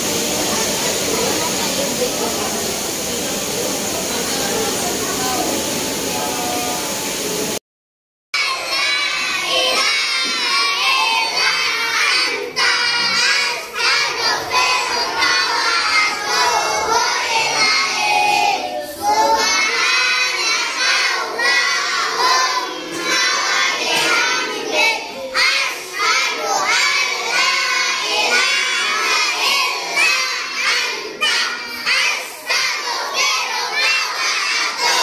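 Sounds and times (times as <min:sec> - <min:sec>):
children shouting and chanting: 0:08.4 - 0:35.0.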